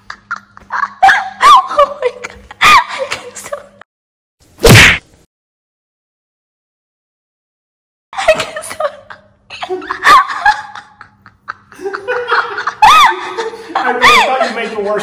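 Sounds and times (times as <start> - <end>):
people laughing: 0.0 - 3.8, 8.2 - 15.0.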